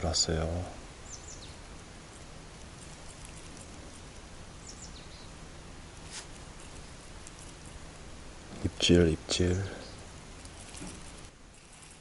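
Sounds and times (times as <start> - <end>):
steady low hiss: 0.0 - 12.0
bird chirping: 1.0 - 5.4, 9.3 - 12.0.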